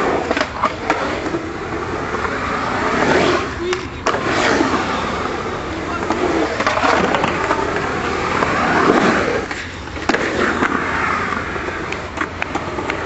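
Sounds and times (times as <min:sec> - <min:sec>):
skateboard clack: 0:00.0 - 0:13.0
skateboard wheels rolling on concrete: 0:00.0 - 0:13.0.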